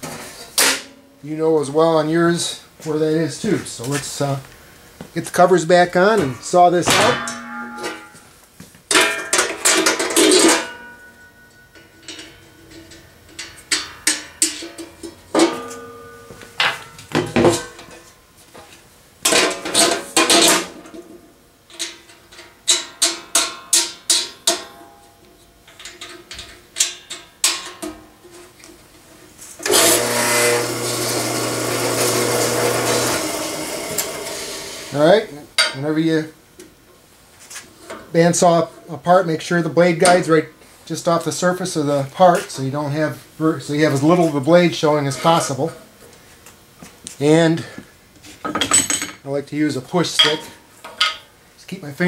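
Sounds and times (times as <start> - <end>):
metal knocks and rattles: 6.2 - 8.2, 8.9 - 18.1
bandsaw running with low hum: 29.6 - 35.3.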